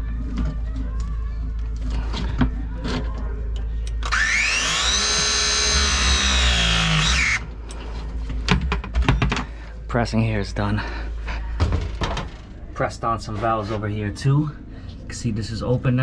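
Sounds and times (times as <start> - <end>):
tool motor whine: 4.0 - 7.5.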